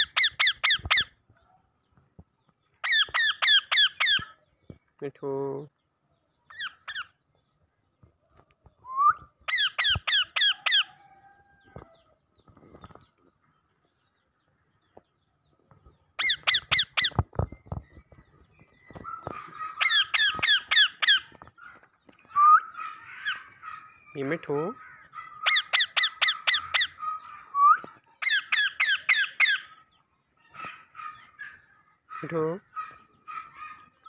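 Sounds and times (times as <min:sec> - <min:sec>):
parakeets calling shrilly: 0:00.0 - 0:01.2, 0:02.8 - 0:04.4, 0:06.5 - 0:07.2, 0:09.5 - 0:11.1, 0:16.2 - 0:17.3, 0:19.0 - 0:34.0.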